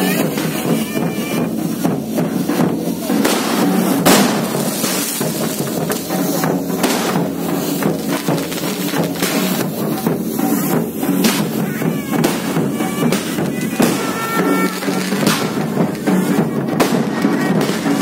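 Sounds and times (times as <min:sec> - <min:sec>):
festival music with drumming: 0:00.0 - 0:18.0
fireworks hissing and crackling: 0:00.0 - 0:18.0
sharp bang: 0:03.2 - 0:08.4.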